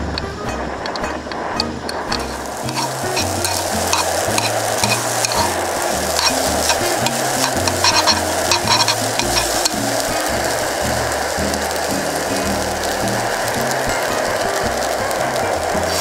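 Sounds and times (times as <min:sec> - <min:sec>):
chopsticks clicking against pan: 0:00.2 - 0:10.0
noodles sizzling in a frying pan: 0:01.4 - 0:16.0.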